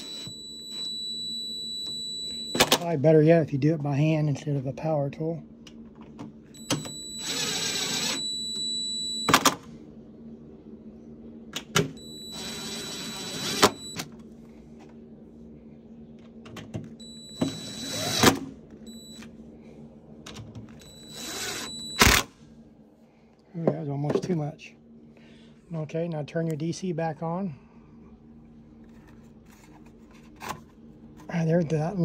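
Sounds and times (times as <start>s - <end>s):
cordless drill running: 6.6s - 8.8s, 12.0s - 14.0s, 17.0s - 19.2s, 20.8s - 22.2s.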